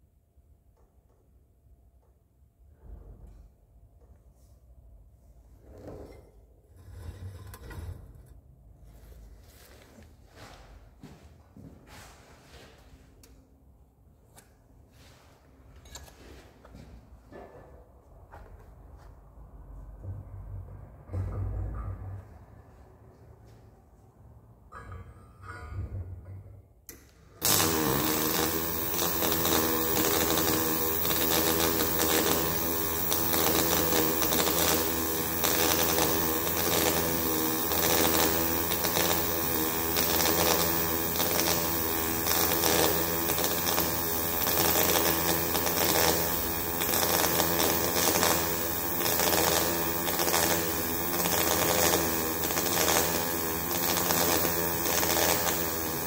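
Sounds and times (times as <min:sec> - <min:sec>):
welding arc buzzing: 0:27.4 - 0:56.0.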